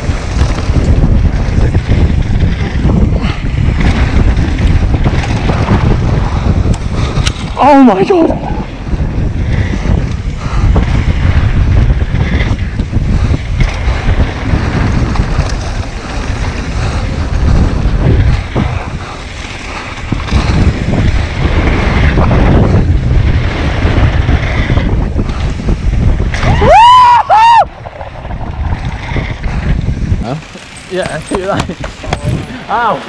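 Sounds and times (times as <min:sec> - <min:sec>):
bike rattling over bumps: 0:00.0 - 0:33.0
tyres rumbling over dirt trail: 0:00.0 - 0:33.0
wind buffeting microphone: 0:00.0 - 0:33.0.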